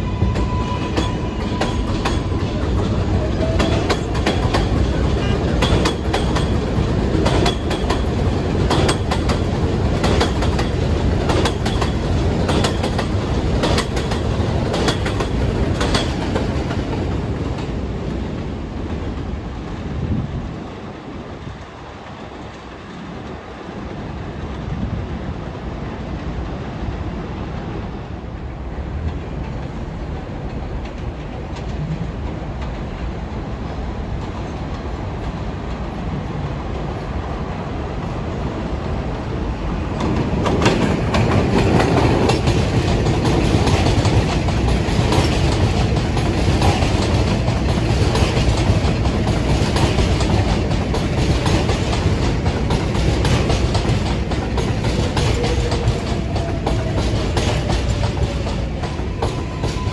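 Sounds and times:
subway train rumbling on track: 0.0s - 59.9s
wheels clacking over rail joints: 0.3s - 19.4s, 39.6s - 59.9s.

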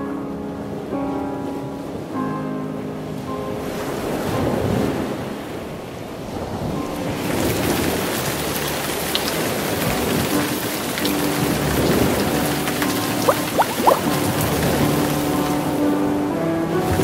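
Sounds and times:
quick rising chirps: 13.3s - 14.1s.

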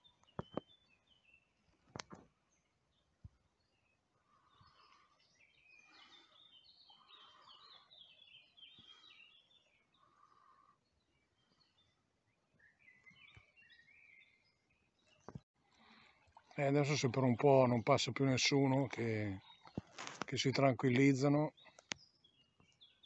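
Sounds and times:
songbird twittering: 3.6s - 15.4s.

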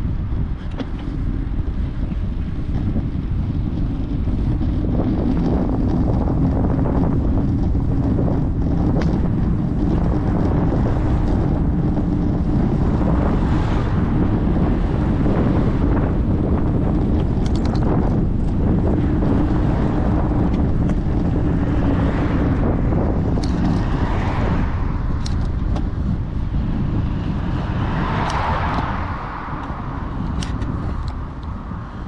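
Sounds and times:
wind buffeting microphone: 0.0s - 32.0s.

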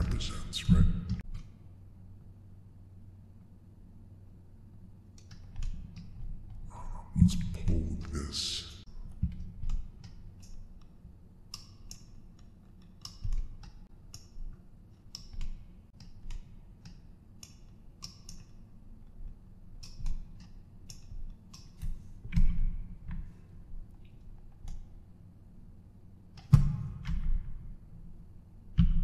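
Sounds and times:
mouse and keyboard clicking: 11.5s - 14.4s.

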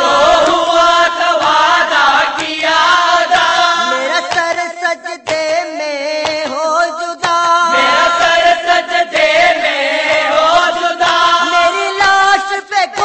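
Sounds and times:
person chanting an elegy: 3.4s - 4.6s, 7.7s - 8.6s.

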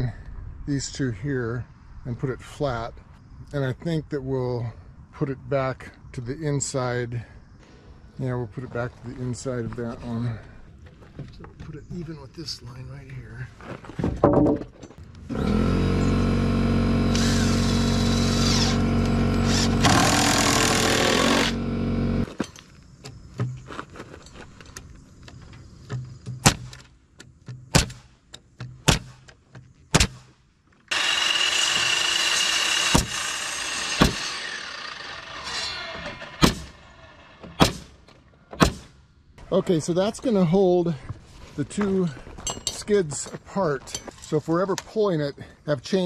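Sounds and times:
power drill running: 15.3s - 22.3s, 30.9s - 37.4s
sharp knocks: 38.5s - 38.9s.

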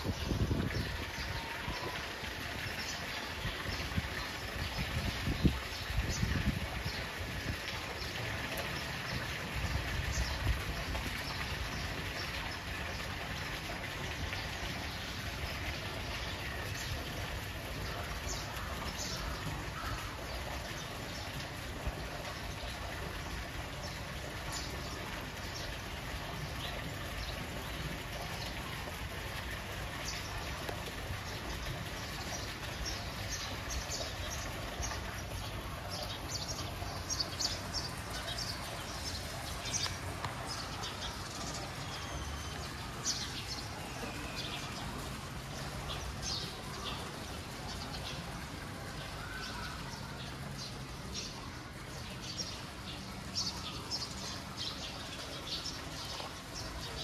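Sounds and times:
background wash of noise: 0.0s - 57.0s
small birds chirping: 30.0s - 57.0s.

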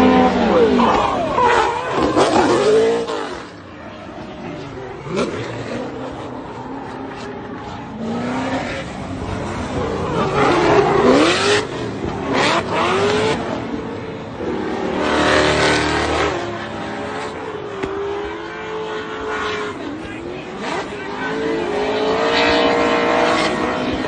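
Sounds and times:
tyre screech: 0.0s - 3.6s
car engines revving: 0.0s - 24.0s.

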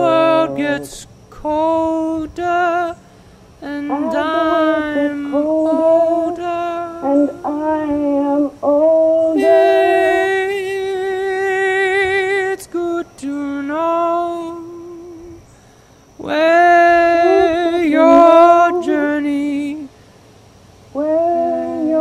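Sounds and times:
singer breathing: 3.0s - 3.6s, 15.5s - 16.1s, 19.9s - 20.4s
woman singing: 3.8s - 8.0s, 16.3s - 19.8s.

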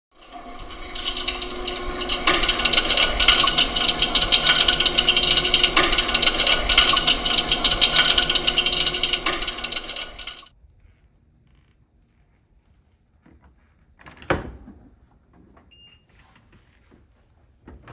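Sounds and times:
dishwasher clicking grinding rattle: 0.1s - 10.5s.

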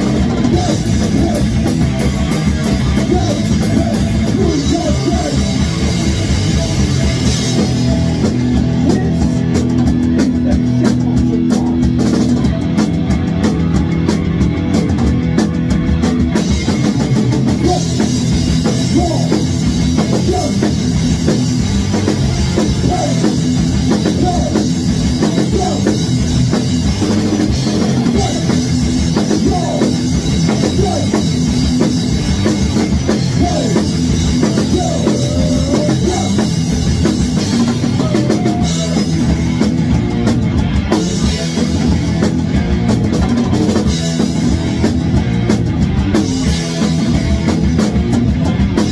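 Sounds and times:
distorted electric guitar and bass: 0.0s - 48.9s
fast drum kit: 0.0s - 48.9s
person singing: 29.2s - 31.4s, 33.2s - 36.6s, 37.6s - 39.3s.

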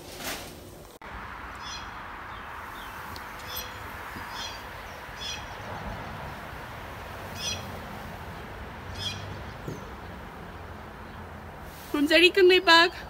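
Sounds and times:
outdoor background hiss: 0.0s - 13.0s
bird chirping: 1.5s - 6.5s, 7.3s - 7.8s, 8.4s - 11.3s.

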